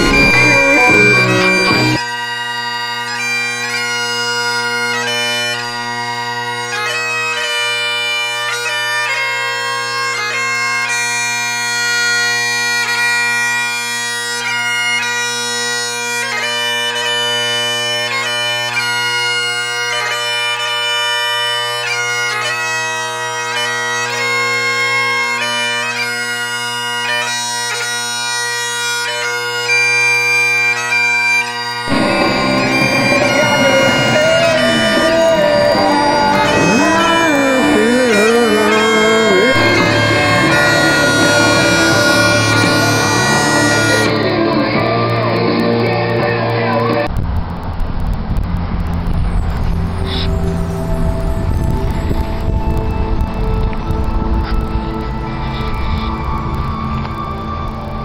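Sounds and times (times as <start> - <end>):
busier music: 0.0 - 2.0, 31.9 - 47.1
bagpipe music: 0.0 - 45.6, 49.9 - 58.0.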